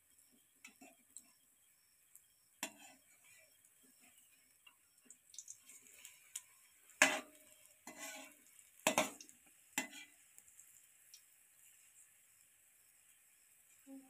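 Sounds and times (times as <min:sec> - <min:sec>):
faint sizzle of deep-frying: 0:00.0 - 0:14.0
metal spoon scraping a pan: 0:02.6 - 0:04.2, 0:05.6 - 0:10.2.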